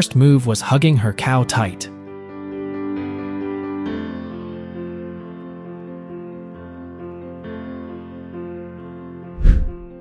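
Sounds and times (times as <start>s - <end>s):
soft instrumental background music: 0.0s - 10.0s.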